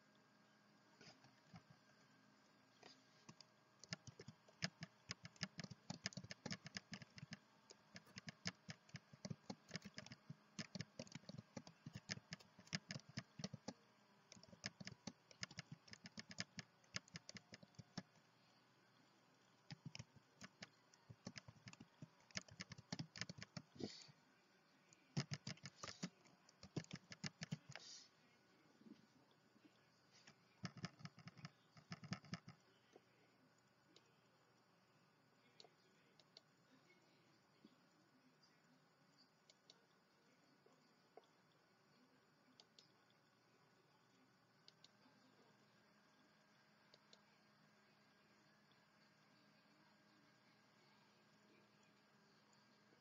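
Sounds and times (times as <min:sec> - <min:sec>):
typing on computer keyboard: 0:03.3 - 0:18.2, 0:19.7 - 0:23.8, 0:25.1 - 0:27.8, 0:30.6 - 0:32.6.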